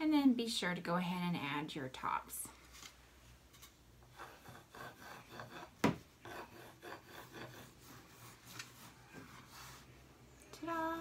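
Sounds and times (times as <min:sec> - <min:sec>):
pencil scratching on paper: 0:04.1 - 0:09.9.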